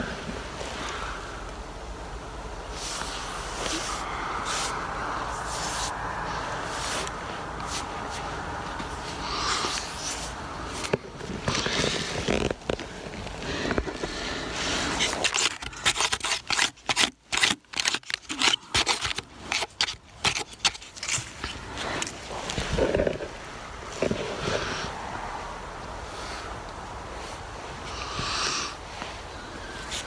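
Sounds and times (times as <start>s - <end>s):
scraping crackling rustle: 2.7s - 25.0s
sharp crunches and knocks: 9.6s - 14.2s, 14.8s - 24.5s.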